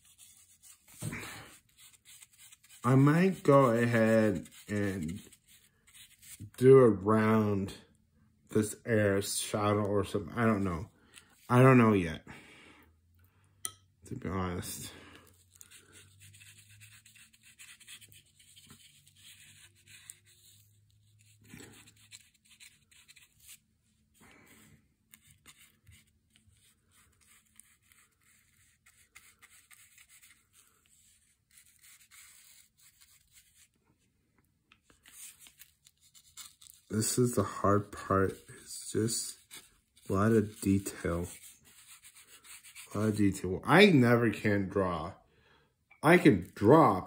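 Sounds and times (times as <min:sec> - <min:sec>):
brush scratching over cardboard: 0:00.0 - 0:06.4, 0:15.3 - 0:33.8, 0:34.9 - 0:43.2.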